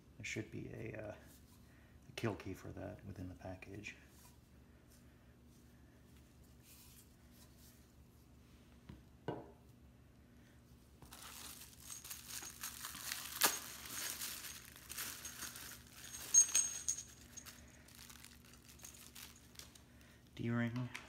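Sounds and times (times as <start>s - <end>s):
bubble wrap crinkling: 11.0s - 19.8s
metallic clink: 11.9s - 17.7s.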